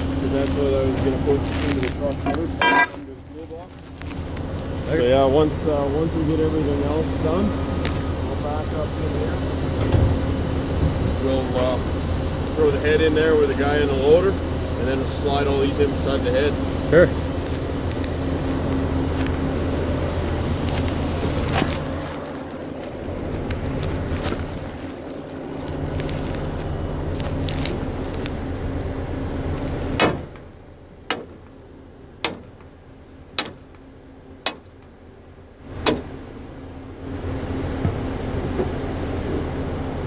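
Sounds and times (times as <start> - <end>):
drilling rig machinery drone: 0.0 - 40.0
footsteps: 17.5 - 28.4.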